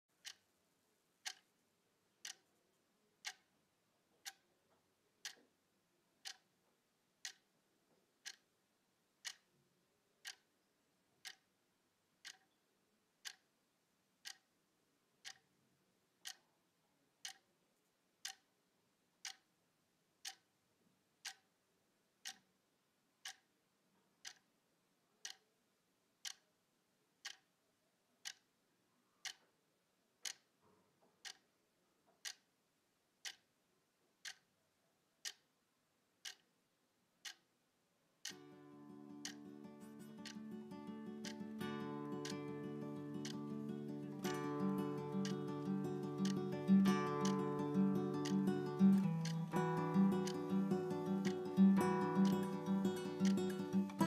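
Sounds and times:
clock ticking: 0.2 - 0.5, 1.2 - 1.5, 2.2 - 2.5, 3.2 - 3.5, 4.2 - 4.4, 5.2 - 5.5, 6.2 - 6.5, 7.2 - 7.5, 8.2 - 8.5, 9.2 - 9.5, 10.2 - 10.5, 11.2 - 11.5, 12.2 - 12.6, 13.2 - 13.5, 14.2 - 14.5, 15.2 - 15.5, 16.2 - 16.4, 17.2 - 17.5, 18.2 - 18.5, 19.2 - 19.5, 20.2 - 20.5, 21.2 - 21.5, 22.2 - 22.5, 23.2 - 23.5, 24.2 - 24.5, 25.2 - 25.4, 26.2 - 26.5, 27.2 - 27.5, 28.2 - 28.5, 29.2 - 29.5, 30.2 - 30.6, 31.2 - 32.5, 33.2 - 33.6, 34.2 - 34.5, 35.2 - 35.5, 36.2 - 36.5, 37.2 - 37.5, 38.2 - 54.0.

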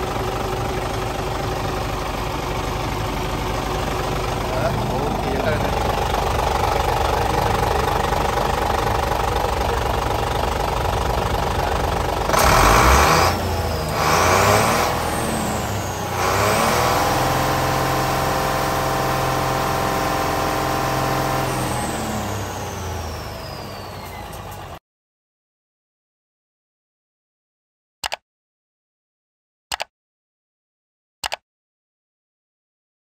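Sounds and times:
diesel truck engine idling and revving: 0.0 - 24.8.

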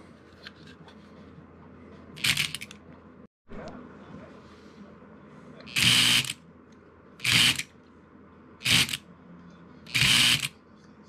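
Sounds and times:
toy mechanism buzzing: 2.2 - 2.7, 5.7 - 6.4, 7.2 - 7.7, 8.6 - 9.0, 9.9 - 10.5.

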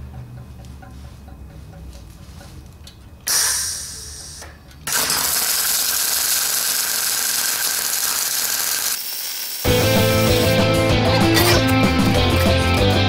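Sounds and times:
arc welding hiss: 3.3 - 10.6.

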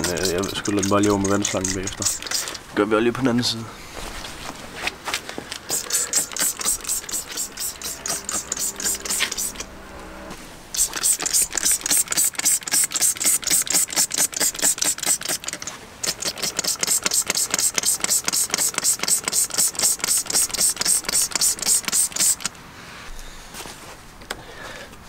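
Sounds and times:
spray bottle hissing squirts: 0.0 - 2.7, 5.6 - 9.7, 10.7 - 22.5.

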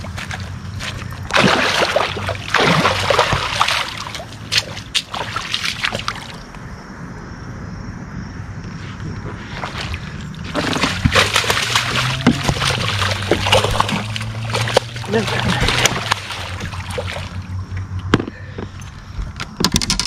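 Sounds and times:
boat motor humming: 0.0 - 5.0, 9.4 - 19.2
sharp water slaps: 0.0 - 6.4, 10.5 - 17.5
water splashing against boat: 0.0 - 6.5, 9.4 - 17.9.

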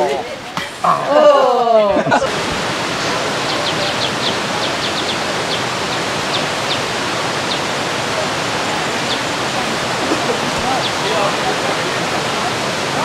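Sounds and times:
flowing water rushing: 0.0 - 13.0
bird chirping: 3.4 - 7.7.

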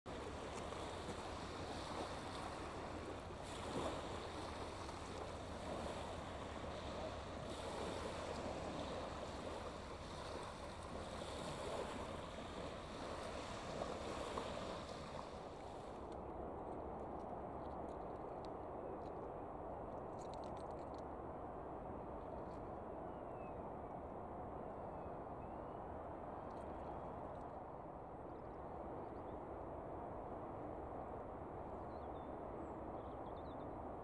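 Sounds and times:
waves lapping on pebbles: 0.1 - 16.1.

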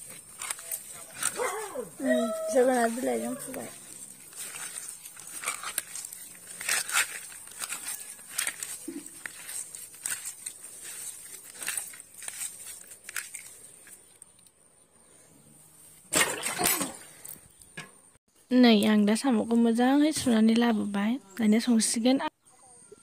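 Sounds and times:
snail shells clicking and crunching: 0.0 - 1.4, 2.8 - 14.6
crushed leaves crackling: 0.0 - 14.5.

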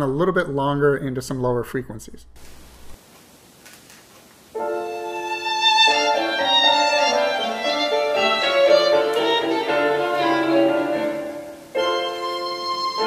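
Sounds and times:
violin-led instrumental music: 4.6 - 13.0.

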